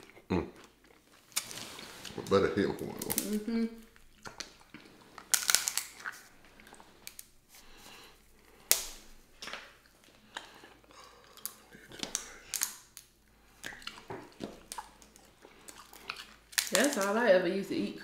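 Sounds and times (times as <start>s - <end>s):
crab shells cracking: 2.8s - 3.4s, 4.0s - 6.2s, 6.8s - 7.3s, 8.6s - 10.5s, 11.3s - 17.1s.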